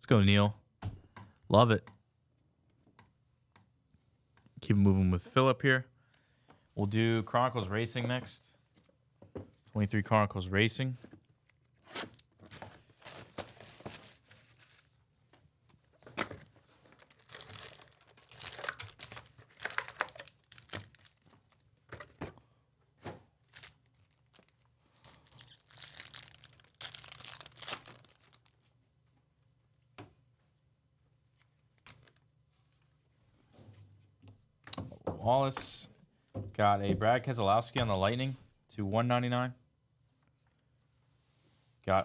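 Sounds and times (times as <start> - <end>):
plastic and foil wrapping crinkling: 12.5 - 15.0, 16.3 - 21.8, 23.4 - 28.7.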